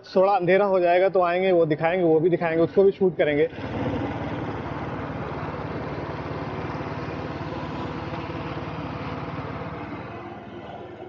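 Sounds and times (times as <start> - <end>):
road and wind noise: 3.5 - 11.0.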